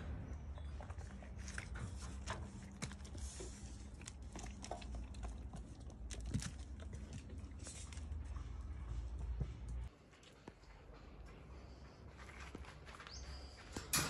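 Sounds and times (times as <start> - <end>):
goat chewing wet crunches: 0.4 - 8.9.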